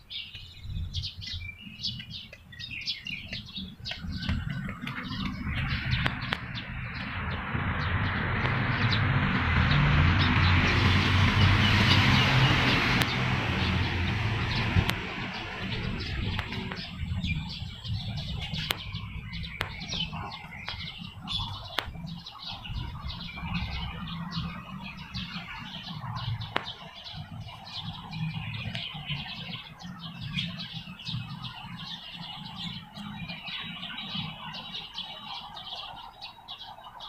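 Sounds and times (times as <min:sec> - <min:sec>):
small birds chirping: 0:00.0 - 0:37.0
low steady rumble: 0:03.6 - 0:21.7.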